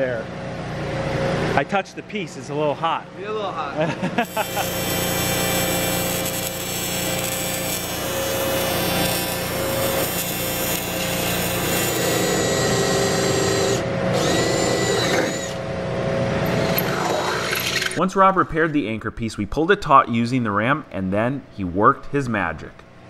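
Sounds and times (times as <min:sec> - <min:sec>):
arc welding hiss: 0:04.2 - 0:12.4
power tool whine: 0:04.2 - 0:15.7, 0:16.4 - 0:18.0.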